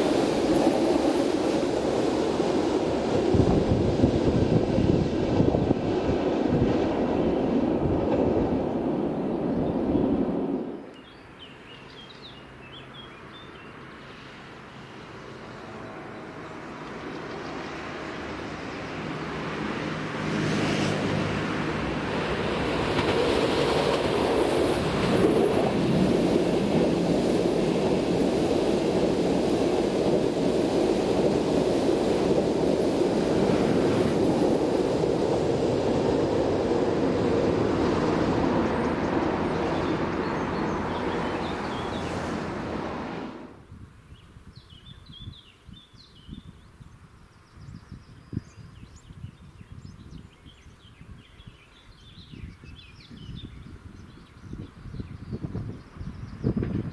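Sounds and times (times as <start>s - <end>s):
train wheels rumbling on rails: 0.0s - 10.9s, 16.4s - 43.6s.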